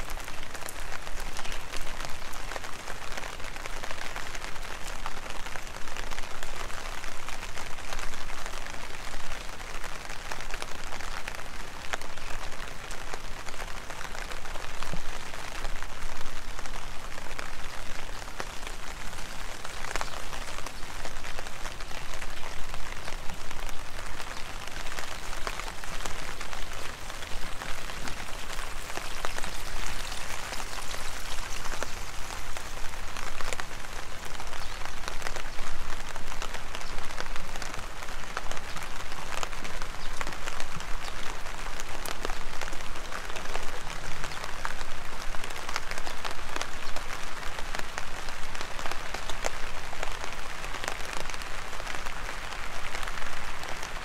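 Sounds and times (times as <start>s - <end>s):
heavy rain hissing: 0.0s - 54.0s.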